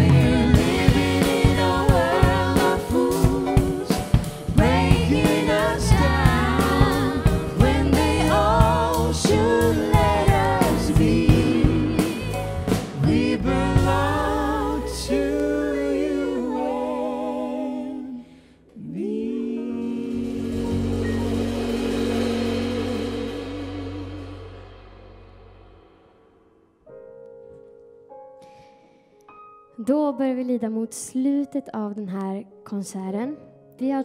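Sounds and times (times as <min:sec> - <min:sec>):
drum beat: 0:00.0 - 0:14.2
gospel group singing: 0:00.0 - 0:24.8.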